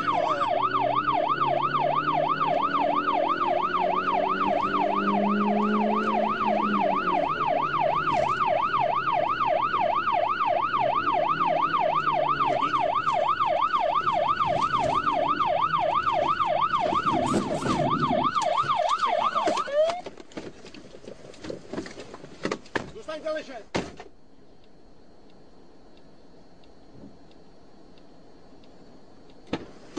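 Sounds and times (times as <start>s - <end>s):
police siren yelping: 0.0s - 20.1s.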